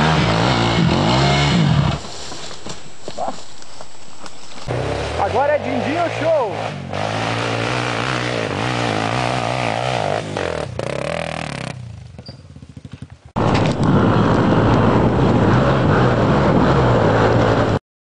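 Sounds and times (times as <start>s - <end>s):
dirt bike engine revving: 0.0s - 2.3s, 4.6s - 17.8s
rush of noise: 13.4s - 17.8s.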